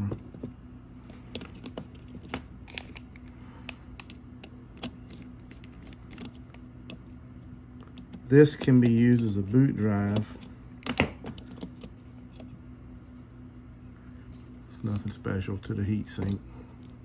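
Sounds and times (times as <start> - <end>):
tool and card handling: 0.0 - 7.2, 7.8 - 12.6, 14.1 - 17.0
faint low hum: 0.0 - 17.0.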